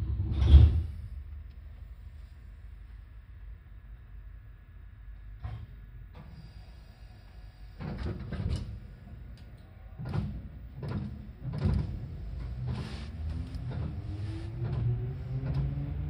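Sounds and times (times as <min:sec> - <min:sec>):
train doors closing thuds: 0:10.0 - 0:16.0
traction motors rising tone: 0:12.0 - 0:16.0.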